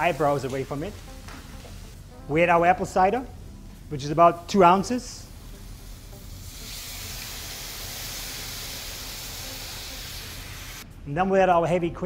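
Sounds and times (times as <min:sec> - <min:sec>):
liquid sizzling in a hot pan: 0:03.4 - 0:10.8.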